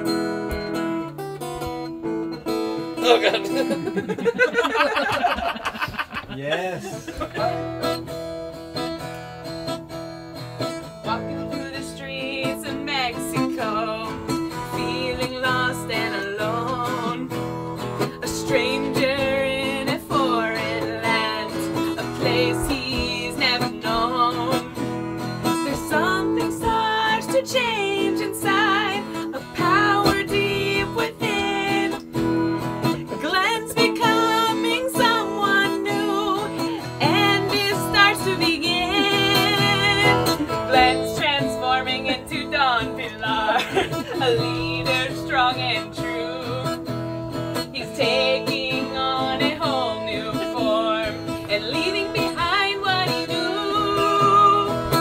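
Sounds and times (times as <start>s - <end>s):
acoustic guitar strumming: 0.0s - 6.2s, 6.8s - 55.0s
person singing: 10.9s - 32.2s, 32.9s - 47.0s, 47.6s - 55.0s.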